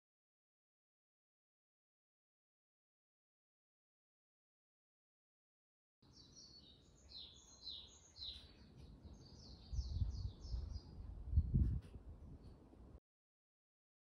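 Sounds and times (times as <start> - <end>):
small bird chirping: 6.0 - 11.8
low rumble on microphone: 9.4 - 12.6.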